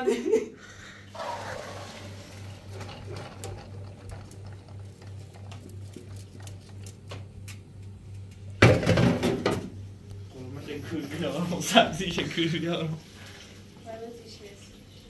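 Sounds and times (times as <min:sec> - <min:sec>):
water pouring into colander: 0:01.2 - 0:05.7.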